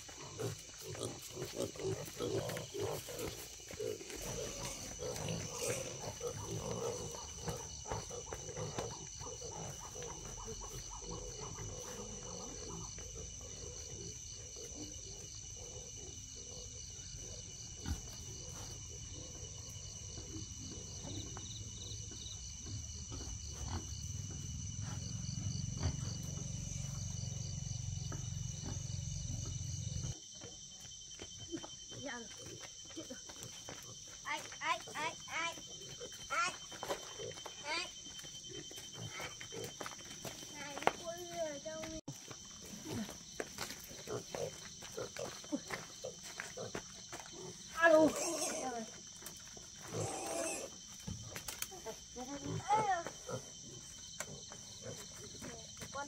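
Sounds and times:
piglets grunting: 49.8 - 50.8.

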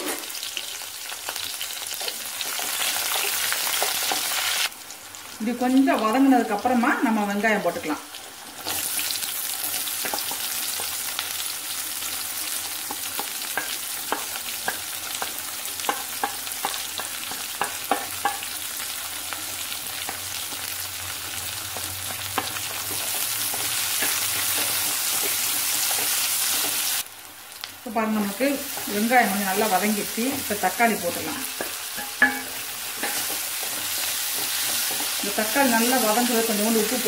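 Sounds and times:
onions sizzling in oil: 0.0 - 37.0
spatula knocking on pan: 12.9 - 18.5, 31.2 - 35.6.

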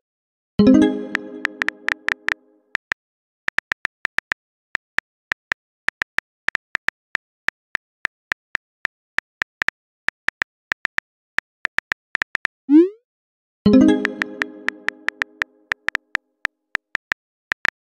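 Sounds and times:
phone keyboard typing clicks: 1.1 - 2.9, 13.9 - 16.2, 16.8 - 17.8.

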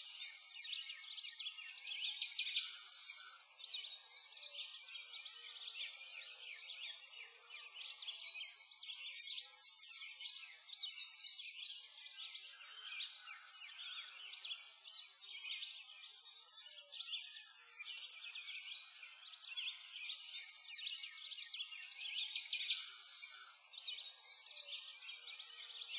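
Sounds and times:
songbirds chirping and trilling: 0.0 - 25.9.

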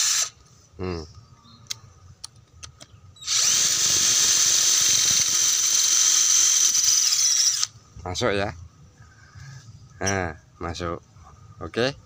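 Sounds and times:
drill grinding into concrete: 0.0 - 0.3, 3.2 - 7.7.

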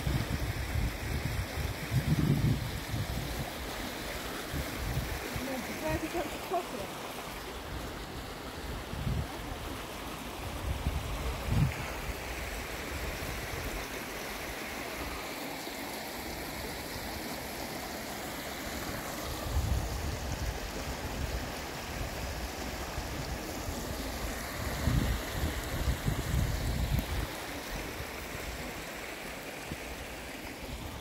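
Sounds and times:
wind buffeting microphone: 0.0 - 3.5, 10.5 - 12.1, 24.6 - 27.4
stream rushing: 0.0 - 31.0.

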